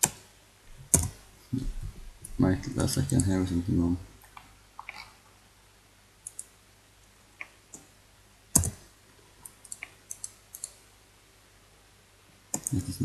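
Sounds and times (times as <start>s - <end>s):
computer mouse clicks: 0.9s - 1.2s, 4.2s - 5.1s, 6.2s - 6.5s, 8.6s - 8.8s, 9.4s - 10.8s, 12.5s - 12.8s.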